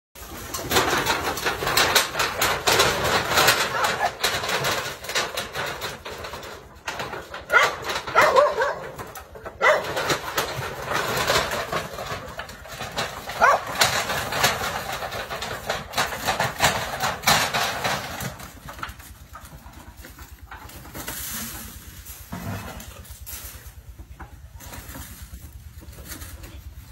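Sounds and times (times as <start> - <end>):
dogs barking: 3.6 - 4.2, 7.4 - 10.5, 13.3 - 13.9.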